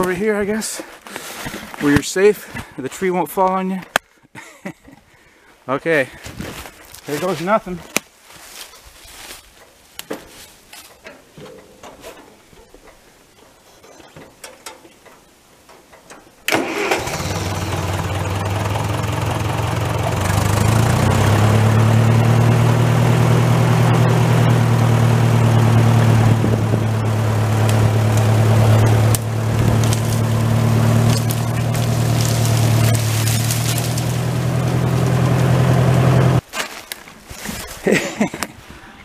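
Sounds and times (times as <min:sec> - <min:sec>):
tractor engine running: 0:09.6 - 0:36.4.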